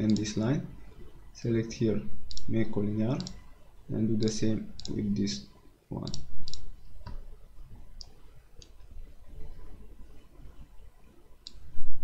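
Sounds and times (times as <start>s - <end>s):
computer mouse clicks: 0.0s - 0.4s, 2.2s - 2.5s, 3.1s - 3.4s, 4.2s - 5.0s, 6.0s - 7.2s, 8.0s - 8.8s, 11.4s - 11.7s
low background hum: 0.0s - 12.0s.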